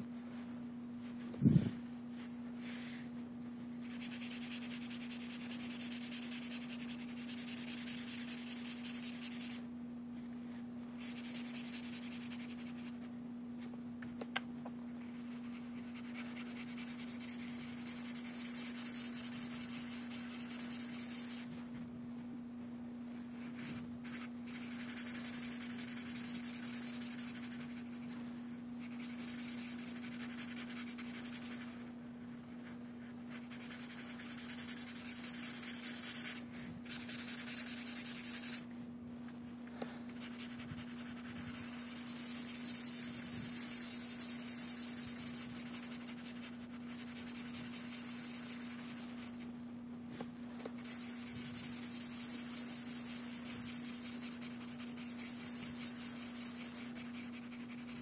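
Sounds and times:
steady low hum: 0.0 - 58.0
marker rubbing on paper: 3.8 - 9.6, 11.0 - 13.0, 15.1 - 21.5, 23.4 - 31.8, 32.5 - 38.6, 40.2 - 49.5, 50.7 - 58.0.

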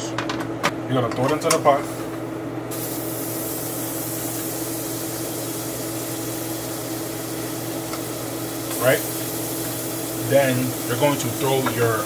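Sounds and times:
butter sizzling in a pot: 2.7 - 12.0.

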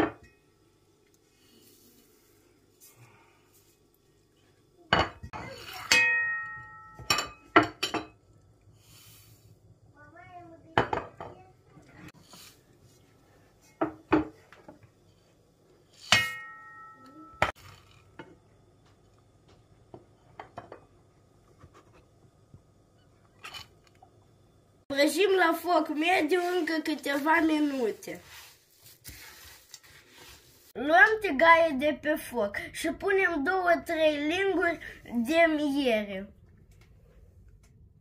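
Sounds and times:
crockery clinking against a pan: 5.8 - 8.2, 16.1 - 17.6.

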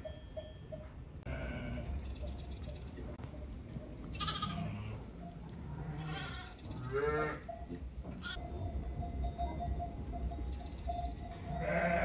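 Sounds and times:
sheep bleating: 4.2 - 4.9, 5.8 - 7.4, 11.6 - 12.0.

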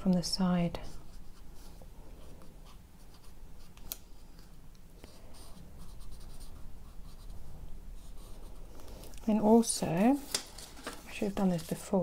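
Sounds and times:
marker scratching on paper: 5.1 - 8.6.

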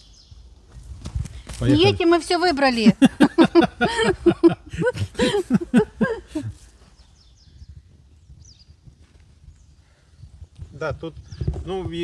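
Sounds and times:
faint bird chirps: 0.0 - 0.5, 6.8 - 11.7.

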